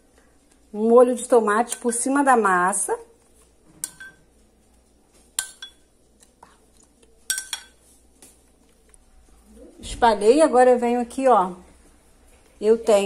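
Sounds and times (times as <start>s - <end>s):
metal spoon clinking on dishes: 1.6s - 2.2s, 3.8s - 4.3s, 5.4s - 5.9s, 7.2s - 7.8s.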